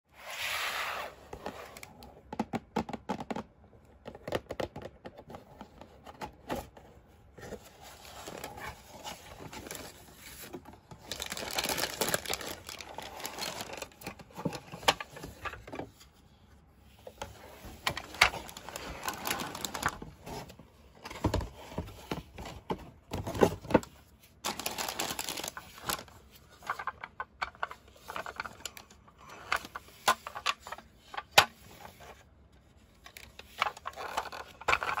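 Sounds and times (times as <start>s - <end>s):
paper packaging crinkling: 7.8s - 15.6s, 17.7s - 20.4s, 23.2s - 30.5s.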